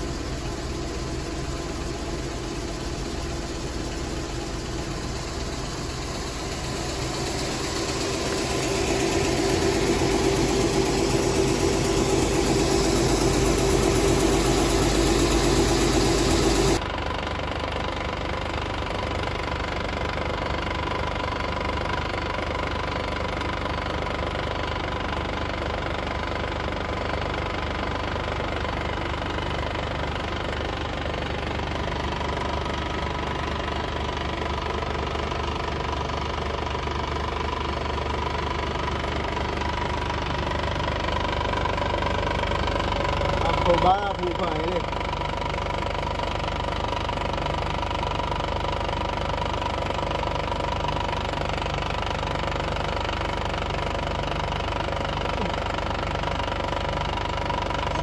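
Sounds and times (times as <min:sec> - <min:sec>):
engine humming: 0:00.0 - 0:16.8.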